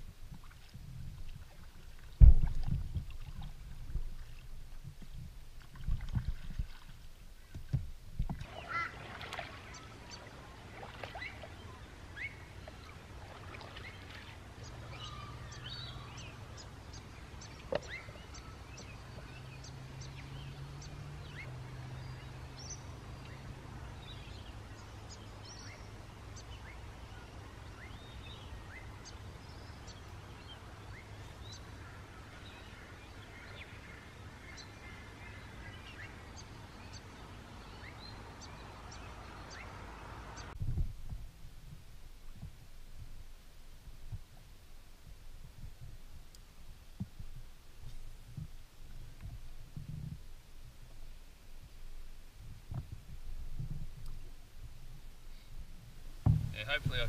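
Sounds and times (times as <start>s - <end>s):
paddle strokes in water: 0.0s - 15.3s
bird calls: 8.4s - 40.6s
paddle knocking against boat: 56.2s - 56.6s.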